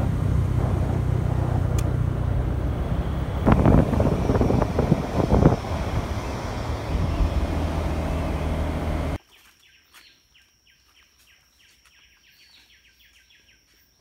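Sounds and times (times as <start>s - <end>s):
steady high thin whine: 0.0s - 9.2s
wind and road rush: 0.0s - 9.2s.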